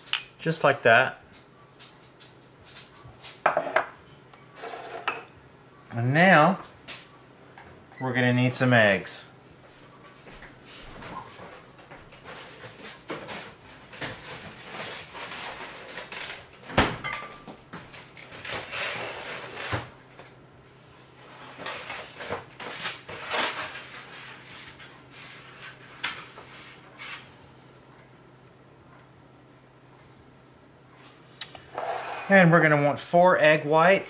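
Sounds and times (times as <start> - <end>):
kitchen knocks and bumps: 3.4 - 4.0.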